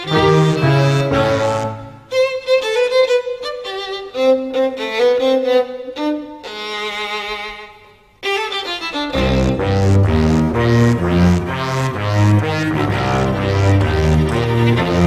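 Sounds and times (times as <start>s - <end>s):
chamber ensemble playing: 0.0s - 2.1s.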